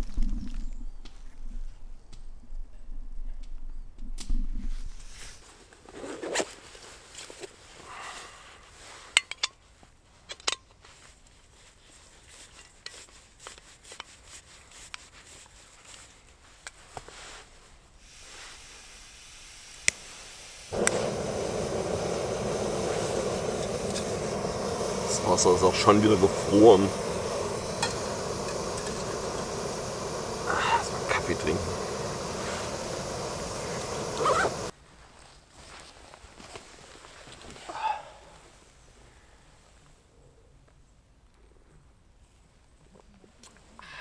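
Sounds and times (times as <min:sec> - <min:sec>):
steady hissing rush: 0:18.0 - 0:34.7.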